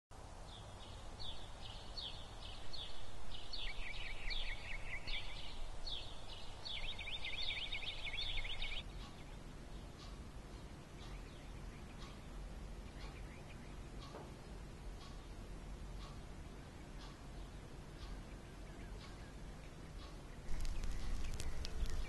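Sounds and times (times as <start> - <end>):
songbird chirping and trilling: 0.4 - 22.0
faint ticks: 8.8 - 22.0.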